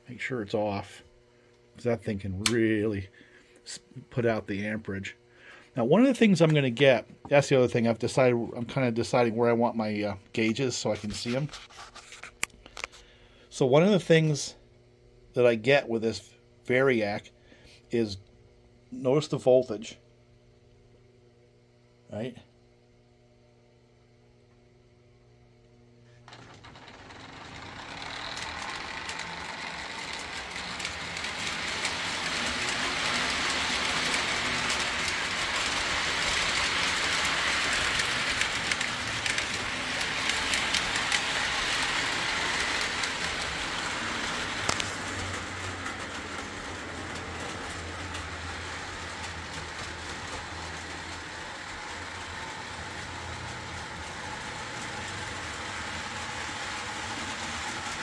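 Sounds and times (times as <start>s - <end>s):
faint hum: 0.0s - 58.0s
model train motor whirring: 26.3s - 58.0s.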